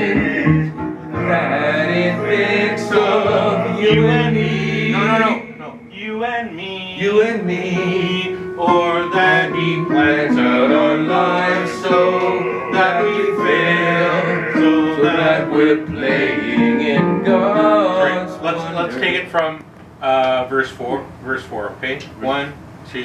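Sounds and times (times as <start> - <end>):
electric keyboard: 0.0 - 5.9, 7.2 - 19.2
men singing together: 0.0 - 19.0.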